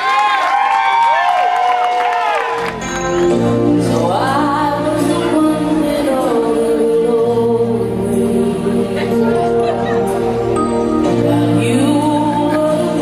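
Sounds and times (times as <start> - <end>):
person singing: 3.8 - 10.4, 11.0 - 13.0.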